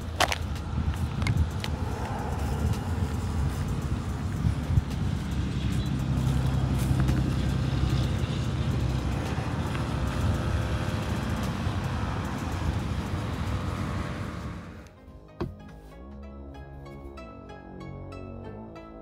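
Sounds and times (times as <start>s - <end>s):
scooter engine running: 0.0s - 14.9s
road traffic passing: 0.0s - 16.0s.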